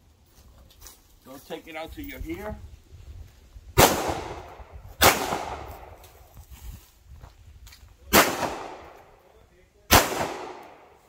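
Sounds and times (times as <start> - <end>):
pistol shots echoing: 3.8 - 6.0, 8.1 - 9.0, 9.9 - 11.0.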